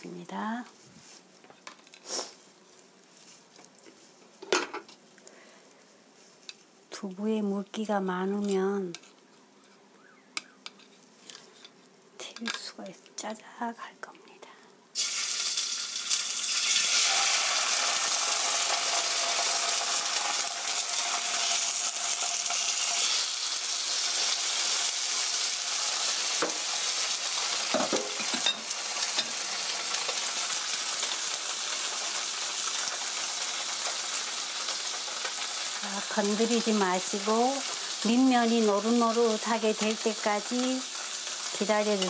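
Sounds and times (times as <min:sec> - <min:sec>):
tofu sizzling in hot oil: 0:15.0 - 0:42.0.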